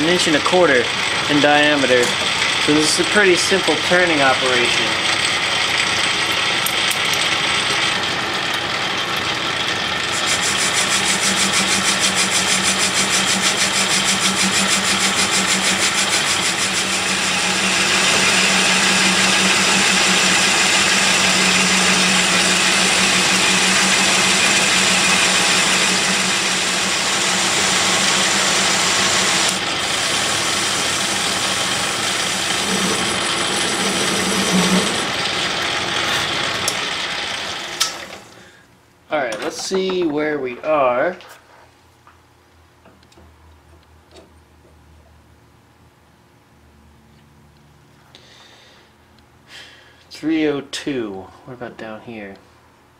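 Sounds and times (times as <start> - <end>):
lathe motor hum: 0.0 - 38.4.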